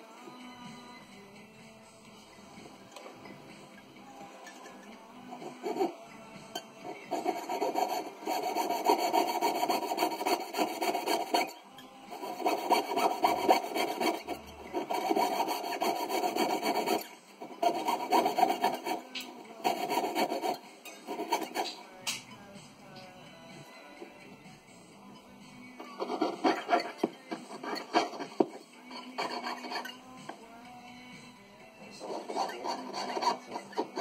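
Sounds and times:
saw cutting metal ring: 4.5s - 6.0s, 6.6s - 21.8s, 25.8s - 30.3s, 31.9s - 34.0s.

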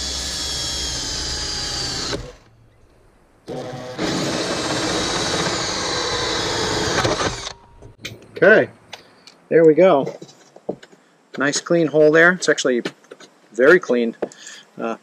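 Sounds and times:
drill cutting through sheet metal: 0.0s - 2.4s, 3.5s - 7.6s.

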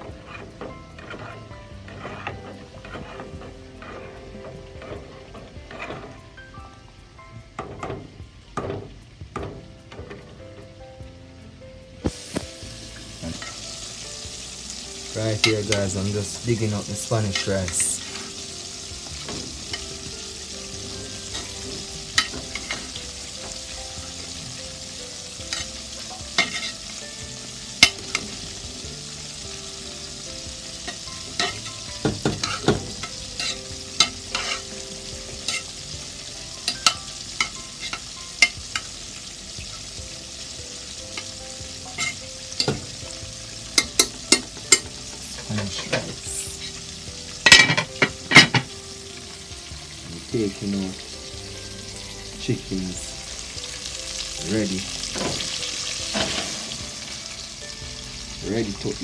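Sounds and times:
spoon scraping metal pot: 0.0s - 6.3s, 25.5s - 26.9s, 30.9s - 34.7s, 41.9s - 42.2s
sizzling hiss: 0.0s - 59.0s.

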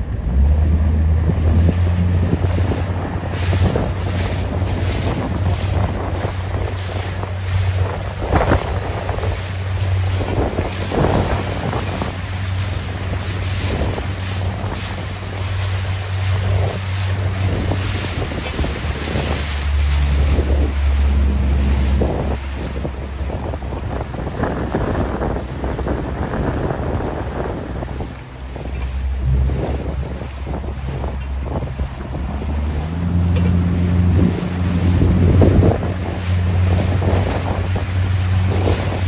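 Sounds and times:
choppy water splashing: 0.0s - 39.0s
wind buffeting microphone: 0.0s - 39.0s
steady low hum: 25.6s - 39.0s.

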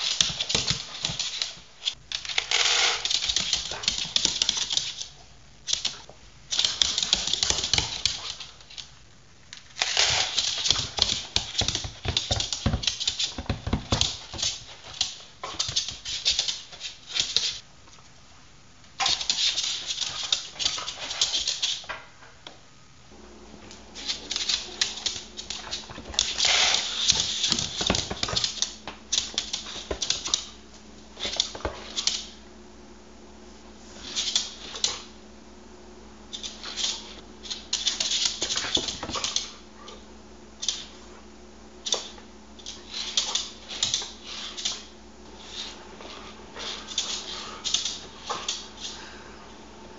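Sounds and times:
dog claws tapping on wooden floor: 0.0s - 5.1s, 10.0s - 17.5s, 24.0s - 30.6s.

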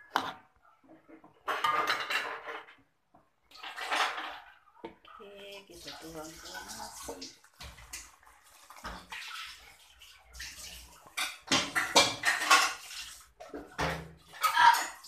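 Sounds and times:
metal cookware clinks and scrapes: 1.4s - 2.8s, 11.1s - 15.0s
liquid pouring and splashing: 5.2s - 15.0s.

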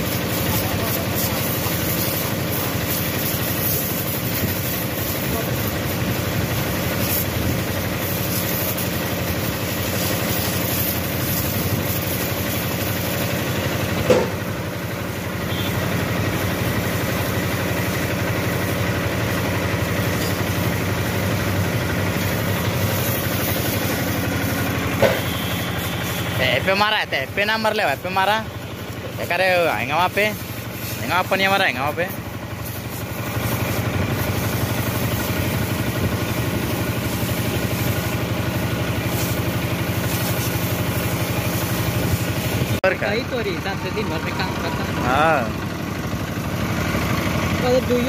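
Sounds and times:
water jet hissing: 0.0s - 48.0s
motor humming: 3.8s - 48.0s
short loud knock: 14.0s - 14.4s.

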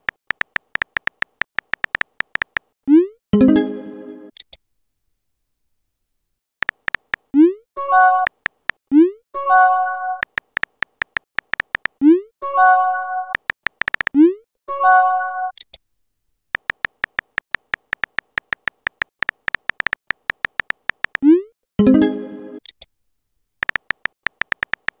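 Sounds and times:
keyboard tap clicks: 0.0s - 2.7s, 6.6s - 7.3s, 10.2s - 12.0s, 13.4s - 14.2s, 16.6s - 21.2s, 23.6s - 25.0s.

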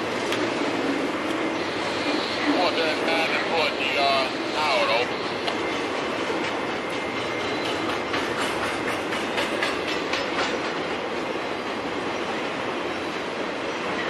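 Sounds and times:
train wheels rumbling on rails: 0.0s - 14.0s
wheels clicking over rail joints: 6.4s - 11.8s.

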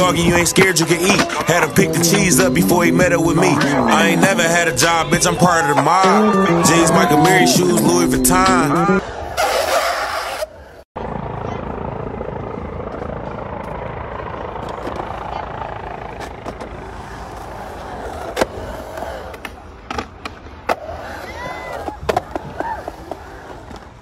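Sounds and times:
skateboard wheels rolling on concrete: 0.0s - 10.9s, 12.8s - 24.0s
skateboard clacking on coping: 16.2s - 24.0s.

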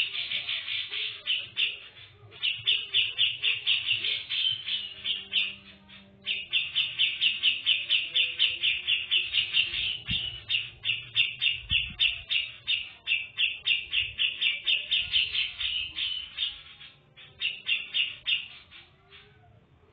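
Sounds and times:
bird chirping: 0.0s - 19.9s.

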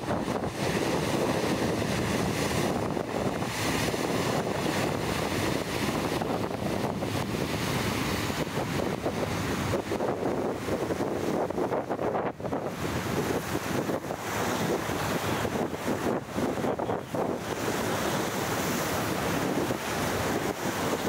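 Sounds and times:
boat engine drone: 0.0s - 21.0s
boat wake rushing: 0.0s - 21.0s
wind buffeting microphone: 0.0s - 21.0s.

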